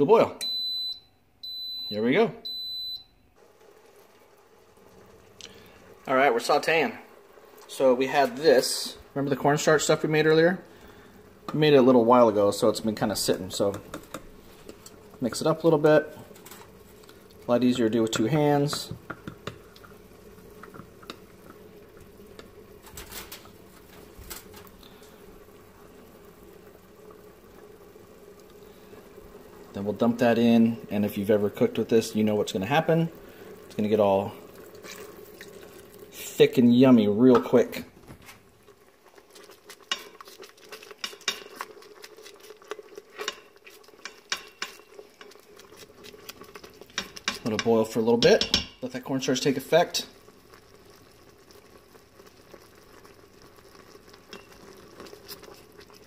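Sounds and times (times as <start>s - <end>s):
sauce bubbling: 2.5s - 56.0s
spatula knocking against pot: 18.7s - 19.6s, 47.0s - 48.8s.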